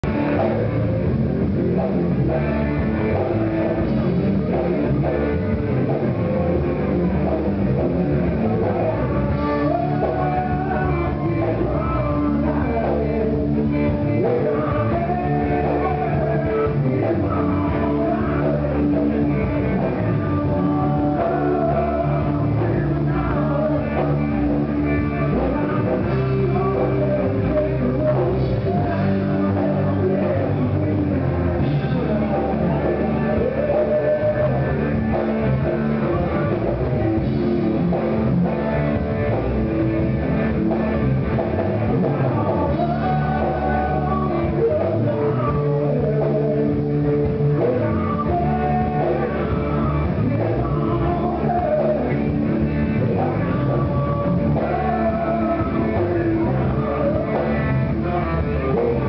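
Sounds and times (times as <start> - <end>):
electric guitar: 0.0 - 59.0
live rock band playing: 0.0 - 59.0
person singing: 0.0 - 59.0.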